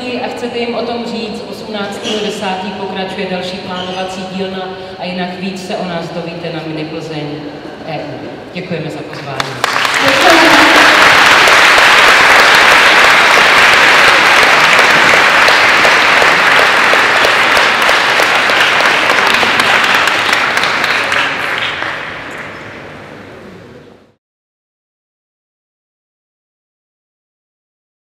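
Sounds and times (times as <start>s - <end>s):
audience applauding: 9.5s - 22.6s.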